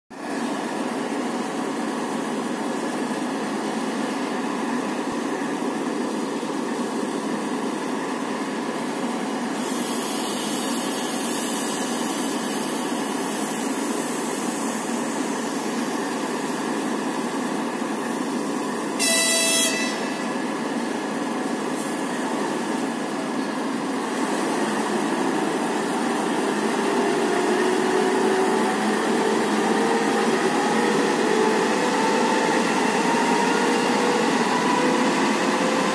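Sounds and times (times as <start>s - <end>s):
diesel locomotive running: 0.2s - 35.9s
hissing air: 9.6s - 15.8s
train horn blast: 19.0s - 20.3s
climbing engine whine: 26.8s - 35.9s.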